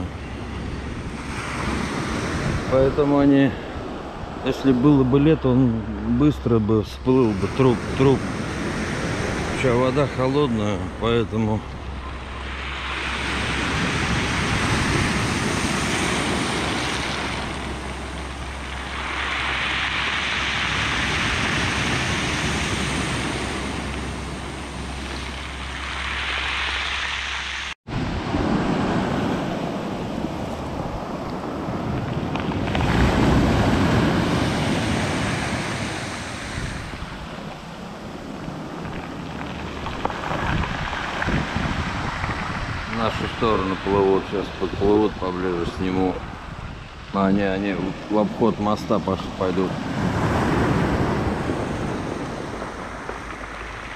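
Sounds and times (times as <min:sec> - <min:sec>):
wind rumbling on microphone: 0:00.0 - 0:53.9
surf breaking on pebble beach: 0:12.3 - 0:46.4.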